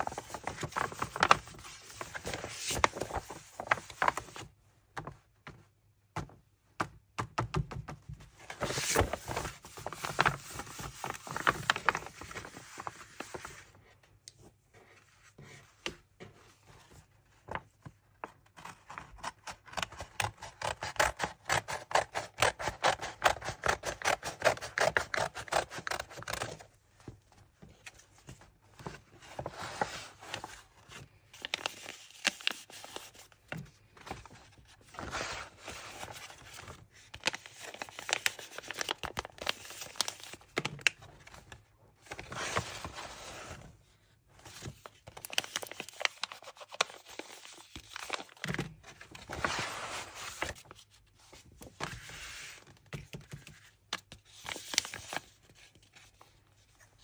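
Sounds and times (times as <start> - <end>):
paper pouches rustling and tearing: 0.0 - 4.4, 8.5 - 13.6, 35.0 - 41.4, 44.4 - 50.8, 54.3 - 55.4.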